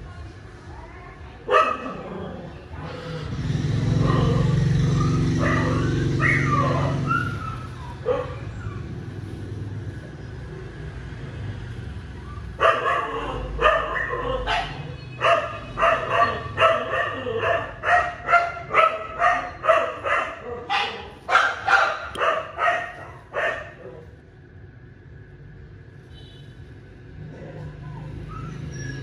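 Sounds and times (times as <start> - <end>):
dog barking: 1.5 - 2.0, 3.9 - 8.5, 12.6 - 24.1.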